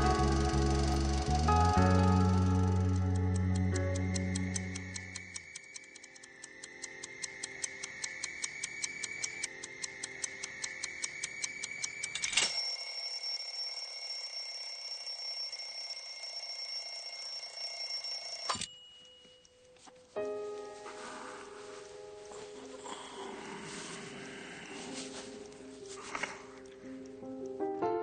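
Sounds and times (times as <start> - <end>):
alarm clock ticking fast: 0.0 - 19.7
alarm clock bell ringing: 0.0 - 20.2.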